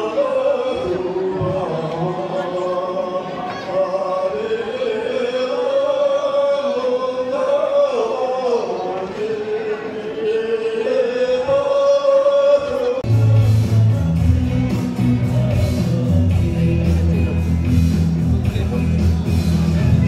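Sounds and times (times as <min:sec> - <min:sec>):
group singing in unison: 0:00.0 - 0:14.3.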